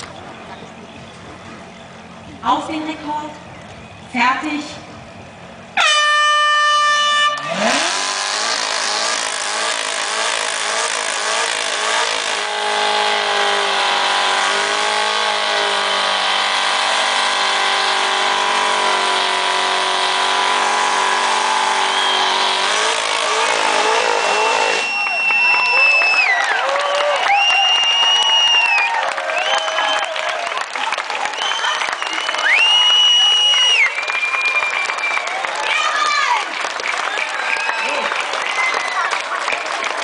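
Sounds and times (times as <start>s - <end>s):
air horn blast: 5.8s - 9.0s
car engine revving: 7.1s - 26.4s.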